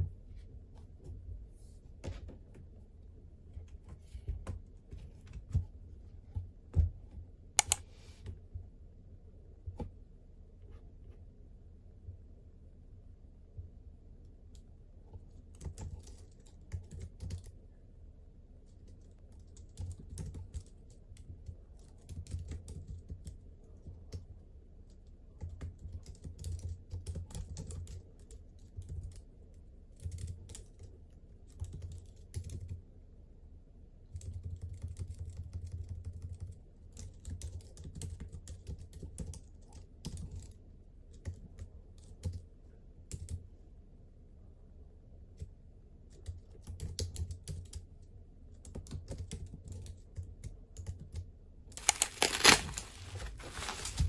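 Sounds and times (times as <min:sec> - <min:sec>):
keyboard typing clicks: 0:07.6 - 0:07.8.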